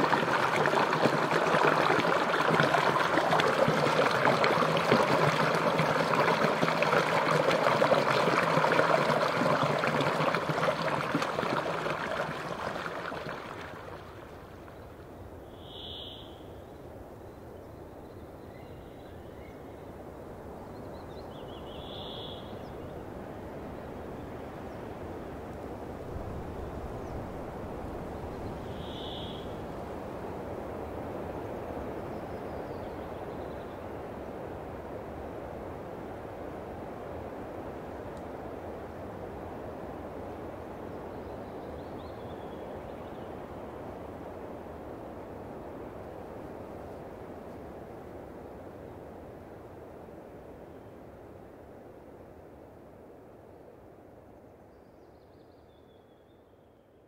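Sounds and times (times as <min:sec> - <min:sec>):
brook trickling and gurgling: 0:00.0 - 0:15.8
short high bird calls: 0:15.5 - 0:16.6, 0:28.7 - 0:29.6.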